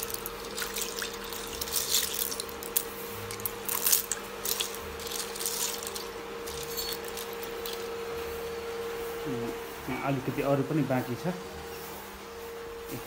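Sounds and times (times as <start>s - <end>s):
water sloshing: 0.0s - 2.5s
snail shells clicking in a bowl: 0.0s - 7.8s
electrical hum: 0.0s - 13.0s.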